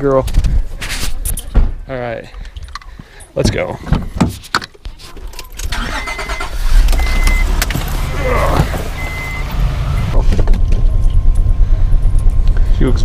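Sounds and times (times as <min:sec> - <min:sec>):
car engine rumble: 0:05.2 - 0:13.0
high warning chime beeps: 0:05.8 - 0:07.5, 0:08.2 - 0:10.2.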